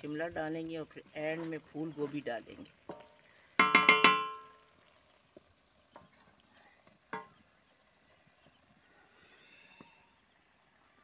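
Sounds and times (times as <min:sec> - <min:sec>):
wooden spatula knocking metal pan: 0:02.9 - 0:04.6, 0:07.1 - 0:07.4.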